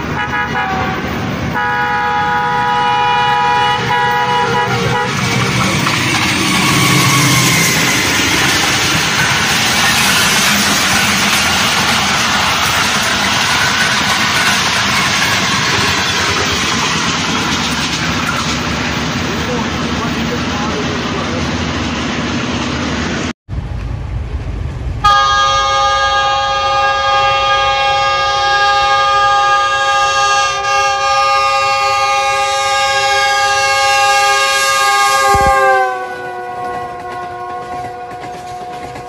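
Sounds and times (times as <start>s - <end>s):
train rumbling: 0.0s - 39.0s
locomotive air horn chord: 0.1s - 8.0s, 25.0s - 39.0s.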